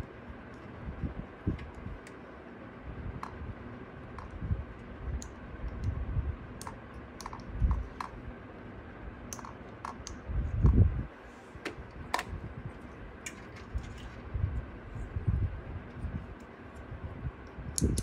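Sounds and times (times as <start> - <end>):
plastic connectors clicking: 6.6 - 8.2, 9.3 - 10.2, 17.7 - 18.0.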